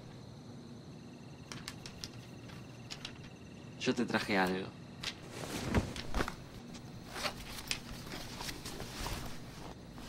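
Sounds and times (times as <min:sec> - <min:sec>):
footfalls: 0:05.1 - 0:09.8
clothing rustling: 0:05.1 - 0:10.0.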